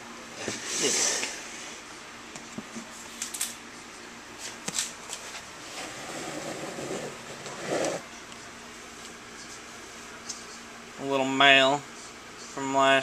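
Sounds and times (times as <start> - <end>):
plastic tub scraping along shelf: 5.6 - 8.0.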